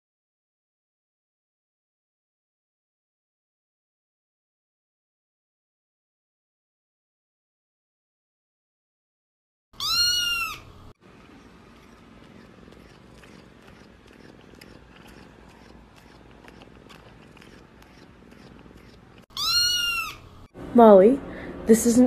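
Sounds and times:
cat purring: 11.0s - 19.2s.

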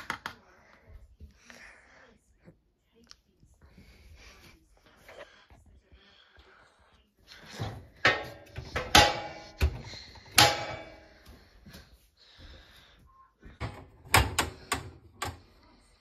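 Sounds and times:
crockery clattering in dishwasher rack: 7.7s - 11.1s
wire rack knocking: 8.0s - 11.0s.

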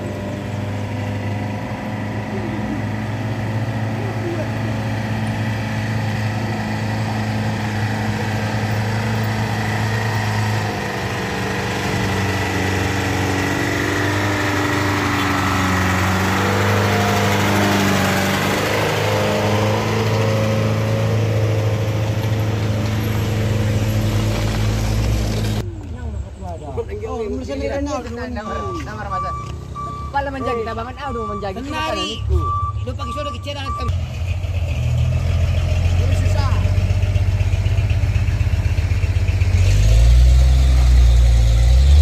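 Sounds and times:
pickup truck driving past: 0.0s - 25.6s
truck driving past: 0.0s - 25.7s, 33.7s - 42.0s
vehicle engines climbing: 0.0s - 42.0s.

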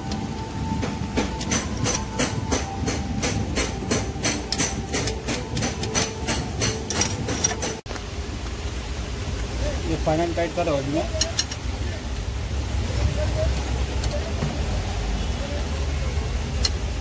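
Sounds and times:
ratchet wrench clicking: 1.4s - 7.8s, 11.1s - 11.7s, 16.6s - 16.8s.

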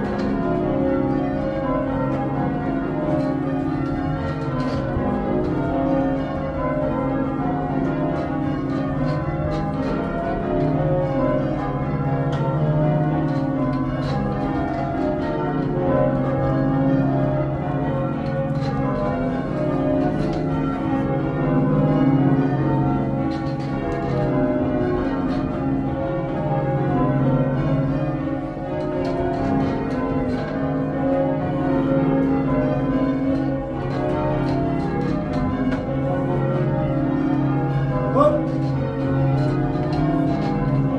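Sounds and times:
church bells ringing: 0.0s - 40.9s.

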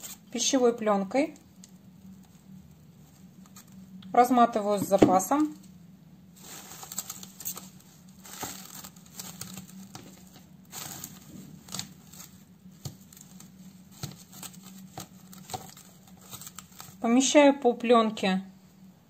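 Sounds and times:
cling film crinkling: 5.6s - 17.0s.

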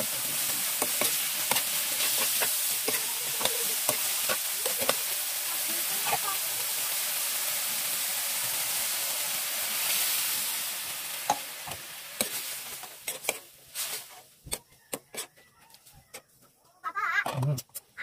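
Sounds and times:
spatula scraping a pan: 0.0s - 6.4s, 11.2s - 15.5s
vegetables sizzling in a frying pan: 0.0s - 14.5s.

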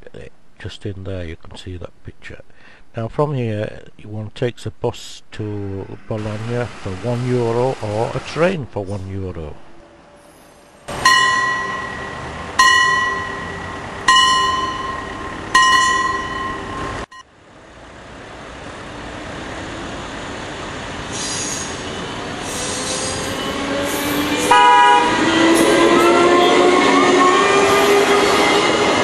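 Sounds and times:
passenger train rumbling: 3.1s - 29.0s
bell ringing: 11.0s - 17.0s
train horn blast: 24.3s - 28.8s.

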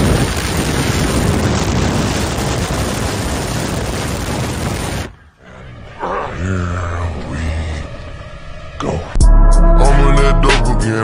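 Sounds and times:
wind rush through car window: 0.0s - 5.3s
music with heavy bass: 9.2s - 11.0s.

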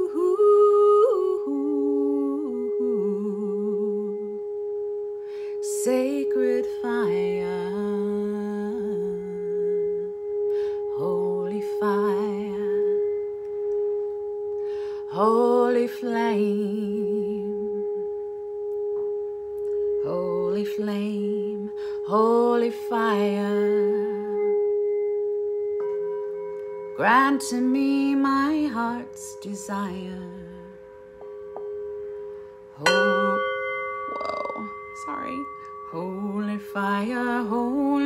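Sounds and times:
woman singing wordless phrases: 0.0s - 4.4s, 5.6s - 10.1s, 10.9s - 13.1s, 15.1s - 17.8s, 20.1s - 24.5s, 27.0s - 30.8s, 32.8s - 38.0s
singing bowl ringing: 0.0s - 38.0s.

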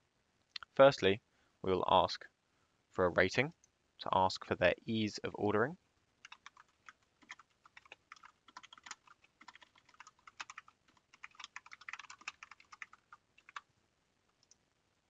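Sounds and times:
keyboard typing: 6.2s - 13.7s.

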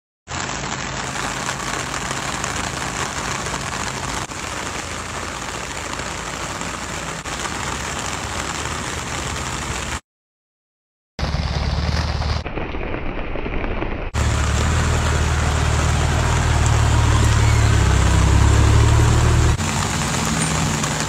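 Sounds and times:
heavy rain hiss: 0.3s - 10.0s, 14.2s - 21.0s.

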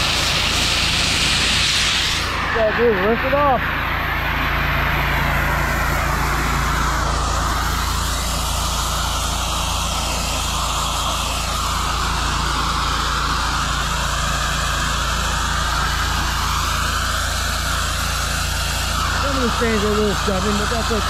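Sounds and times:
pressure washer engine humming: 0.0s - 21.0s
water spray hissing: 7.5s - 21.0s.

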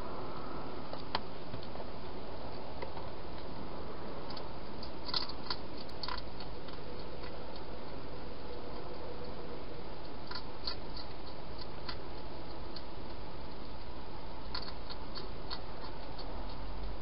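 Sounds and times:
hedgehog crunching food: 4.2s - 17.0s.

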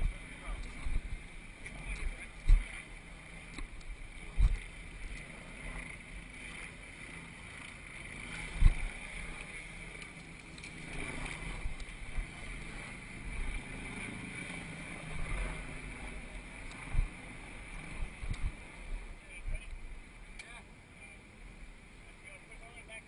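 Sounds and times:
wind on microphone: 0.0s - 20.2s.

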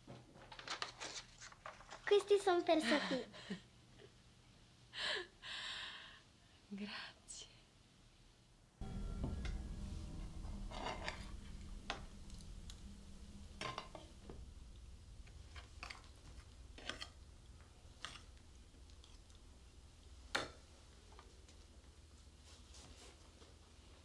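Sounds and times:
low room tone rumble: 8.8s - 24.0s.

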